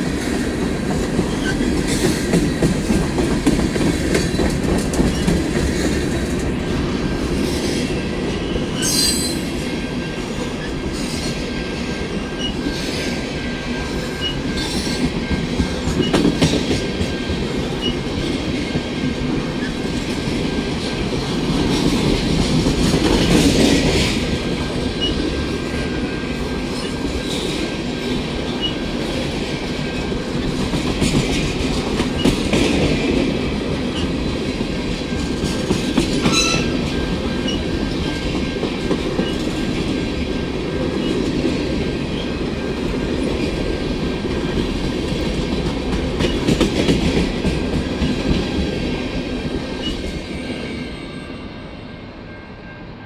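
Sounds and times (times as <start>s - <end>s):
train rolling past: 0.0s - 53.0s.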